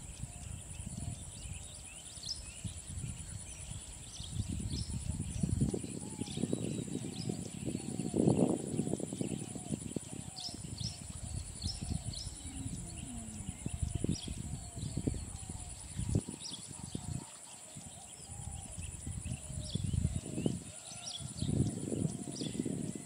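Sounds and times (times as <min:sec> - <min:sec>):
high-pitched insect buzz: 0:10.6 - 0:15.5.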